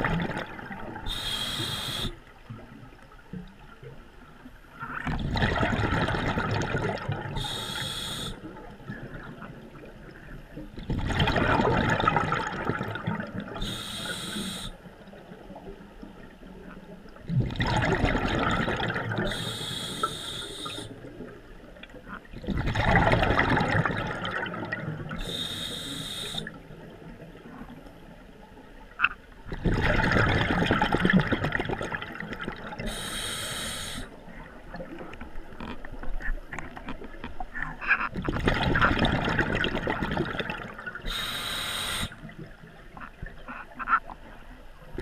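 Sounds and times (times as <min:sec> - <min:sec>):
exhaled bubbles rushing: 0:00.0 - 0:01.2, 0:05.0 - 0:07.6, 0:10.8 - 0:13.7, 0:17.1 - 0:19.5, 0:22.3 - 0:25.3, 0:29.5 - 0:33.0, 0:38.1 - 0:41.2
regulator inhalation hiss: 0:01.1 - 0:02.2, 0:07.4 - 0:08.5, 0:13.6 - 0:14.8, 0:19.2 - 0:20.9, 0:25.2 - 0:26.6, 0:32.8 - 0:34.2, 0:41.0 - 0:42.2.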